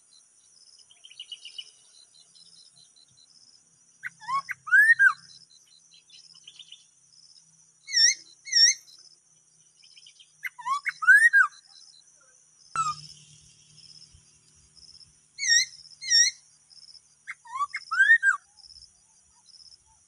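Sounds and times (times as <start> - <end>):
insects trilling: 0.0 - 20.0
songbird whistling: 4.0 - 5.4, 7.9 - 9.0, 10.0 - 11.7, 12.8 - 14.0, 15.4 - 16.4, 17.2 - 18.5.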